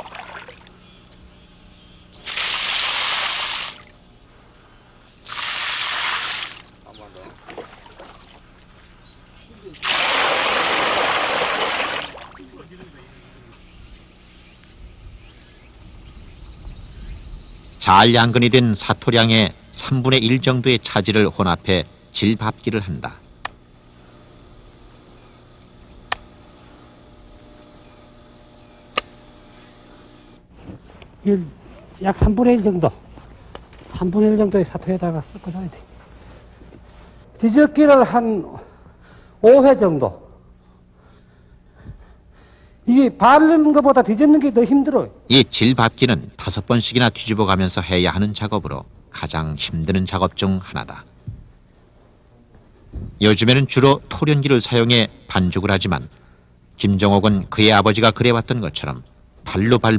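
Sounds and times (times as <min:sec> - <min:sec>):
high insect drone: 0:00.0 - 0:30.5
liquid clay splashing through sieve: 0:09.8 - 0:12.4.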